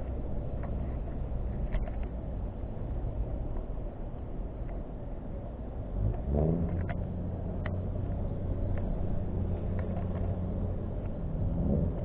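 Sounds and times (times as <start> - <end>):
engine revving and running: 6.0 - 7.1, 11.2 - 12.0.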